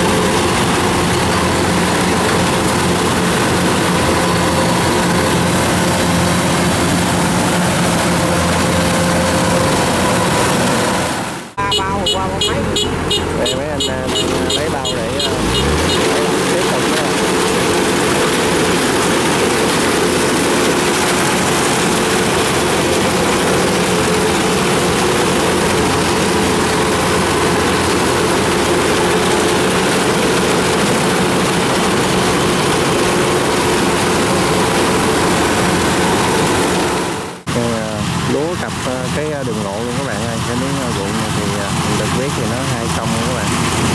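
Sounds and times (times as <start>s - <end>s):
combine harvester running: 0.0s - 43.9s.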